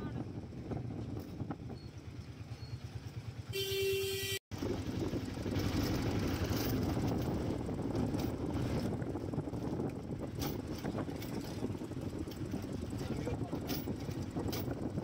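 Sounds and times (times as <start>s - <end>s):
engine and road noise: 0.0s - 15.0s
vehicle horn: 3.5s - 4.4s.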